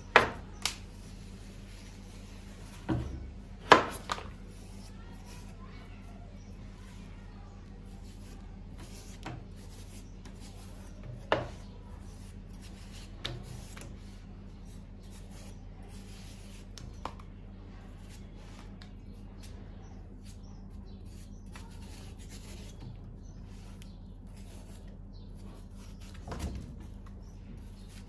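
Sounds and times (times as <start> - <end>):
knife scraping watermelon rind: 7.7 - 28.0.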